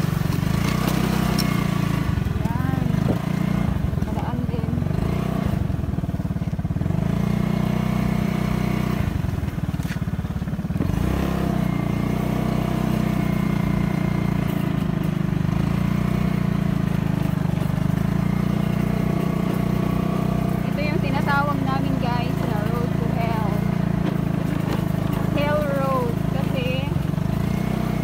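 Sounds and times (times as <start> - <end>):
small motorcycle engine running: 0.0 - 28.0.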